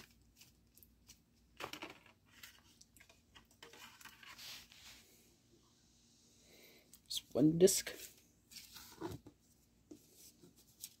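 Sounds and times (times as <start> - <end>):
cardboard sleeve rustling: 7.9 - 11.0.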